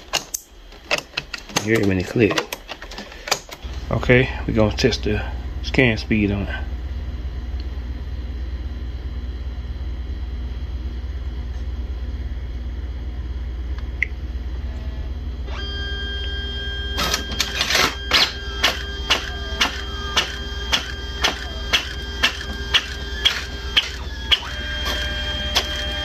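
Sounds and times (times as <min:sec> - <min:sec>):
printer mechanism whirring: 0:00.0 - 0:03.8, 0:15.5 - 0:26.0
fast printer clacks: 0:18.6 - 0:26.0.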